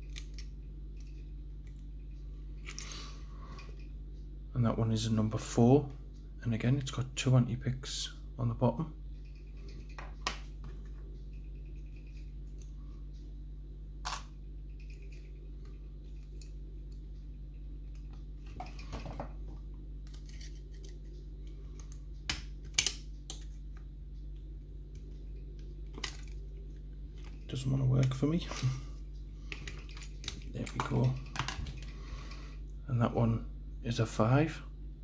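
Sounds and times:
steady low hum: 0.0 - 35.0.

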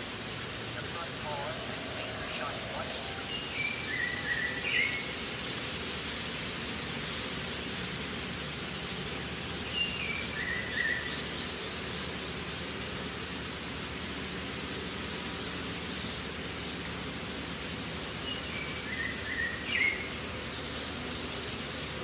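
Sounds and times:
steady outdoor hiss: 0.0 - 22.0
bird whistling call: 1.4 - 5.2, 9.7 - 11.4, 18.3 - 20.2.

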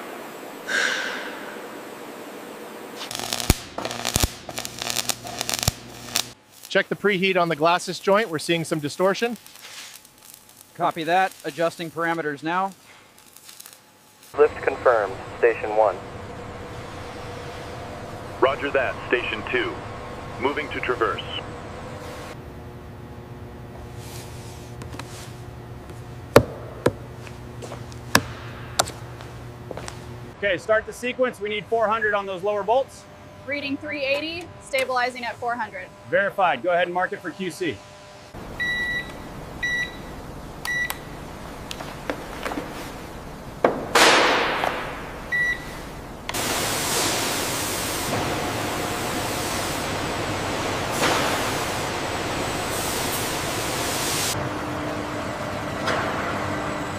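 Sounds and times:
steady loud hiss: 0.0 - 21.4, 42.6 - 54.4
factory machinery hum: 0.0 - 56.9
sharp hiss: 3.0 - 14.4, 46.4 - 48.1.

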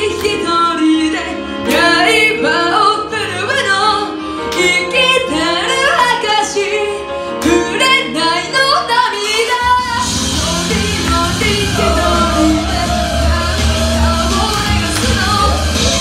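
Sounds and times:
woman singing into a microphone: 0.0 - 16.0
backing track: 9.3 - 16.0
heavy beat with deep bass: 11.1 - 16.0.

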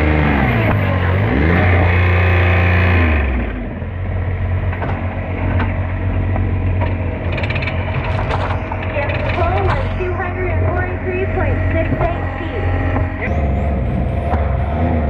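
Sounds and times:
diesel tractor engine running: 0.0 - 15.0
metallic clicks and rattles: 6.8 - 9.9.

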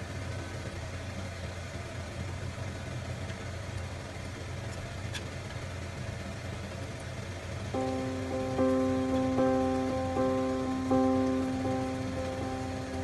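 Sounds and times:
low steady hum: 7.8 - 13.0.

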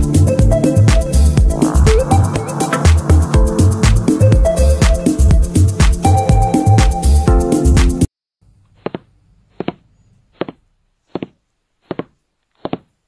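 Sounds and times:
electronic dance music: 0.0 - 8.1.

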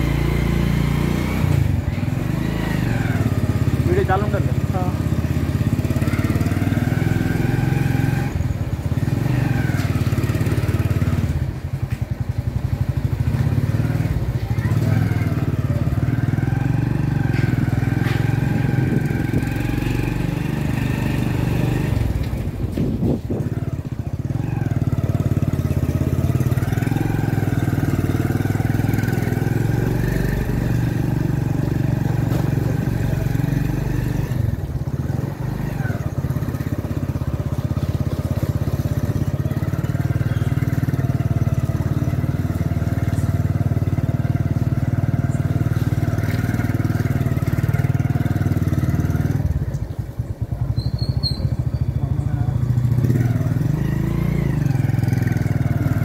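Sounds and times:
motorbike engine running: 0.0 - 56.0.

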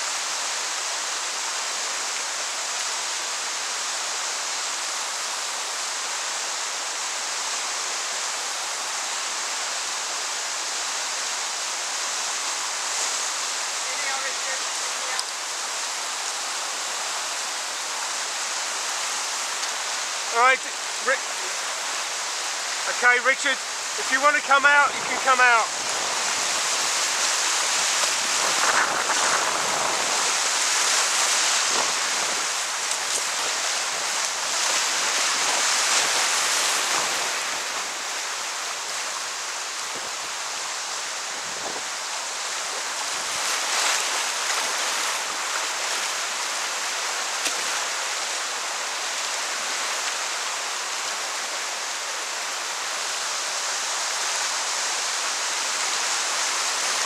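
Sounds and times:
whitewater roaring: 0.0 - 57.0
water splashes: 11.8 - 57.0.

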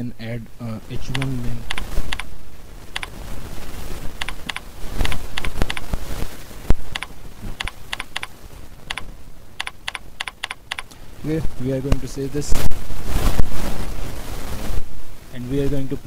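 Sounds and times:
computer keyboard typing: 1.1 - 2.3, 4.2 - 5.9, 6.9 - 8.3, 8.9 - 10.9.

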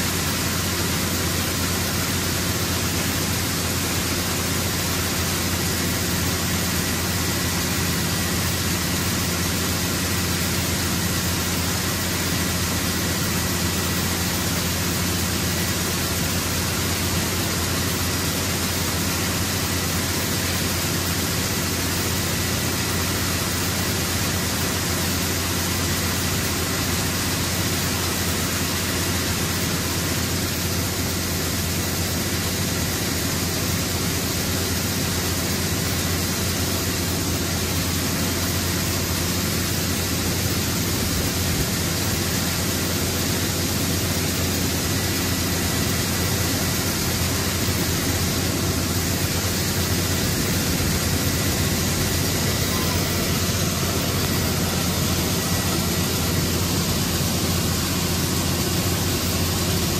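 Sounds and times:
grain rushing: 36.2 - 59.9
auger low hum: 44.1 - 59.9.

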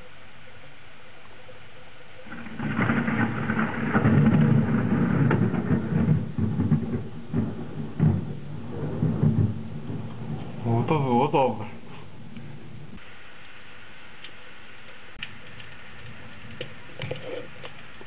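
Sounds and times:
thunder rumble with sharp cracks: 2.2 - 13.0.

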